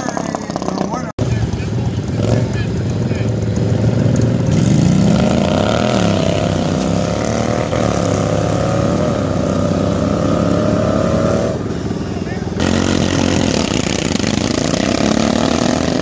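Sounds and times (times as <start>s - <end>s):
lawn tractor engines accelerating: 0.0s - 16.0s.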